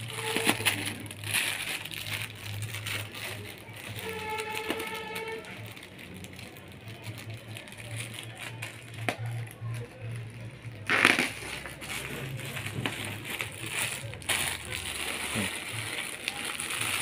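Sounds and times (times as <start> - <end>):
plastic wrapping crinkling: 0.0 - 17.0.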